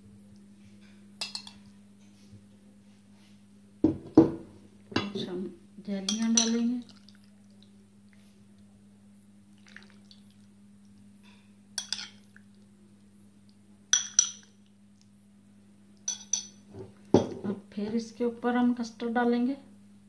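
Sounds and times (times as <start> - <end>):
steady low hum: 0.0 - 20.0
spoon clinking on glass bowl: 1.2 - 1.6, 6.1 - 6.6, 11.8 - 12.2, 13.9 - 14.5, 16.1 - 16.6.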